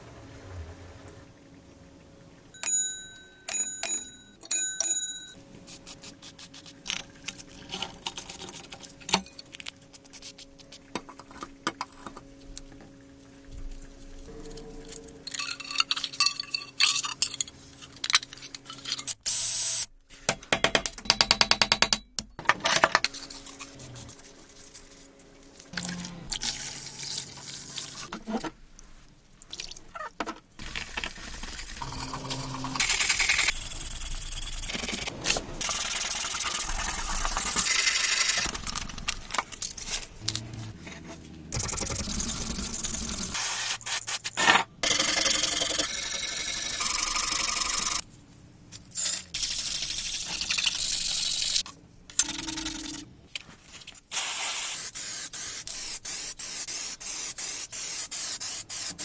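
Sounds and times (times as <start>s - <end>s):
bell gong ringing: 14.3s - 15.8s.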